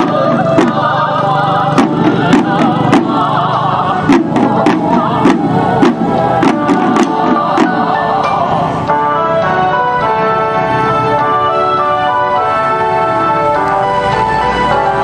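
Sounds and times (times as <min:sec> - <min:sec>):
waist drums struck with sticks: 0:00.0 - 0:01.0, 0:01.7 - 0:08.4
wavering melody: 0:00.0 - 0:15.0.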